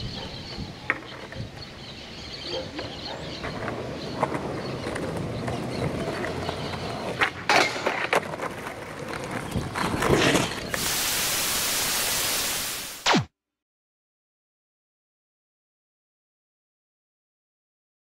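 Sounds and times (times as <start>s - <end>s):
skateboard wheels rolling on concrete: 0.0s - 12.6s
skateboard clacking on ground: 2.9s - 10.8s.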